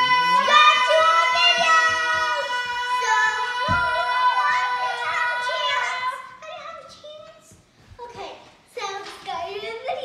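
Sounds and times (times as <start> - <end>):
children singing loudly: 0.0 - 6.6.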